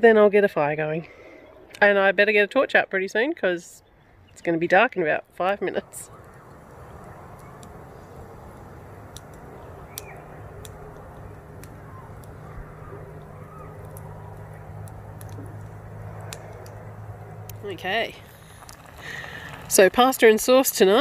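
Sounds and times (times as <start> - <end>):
low steady hum: 0.0 - 21.0
campfire crackling: 4.2 - 21.0
sharp pops of fire: 5.9 - 19.8.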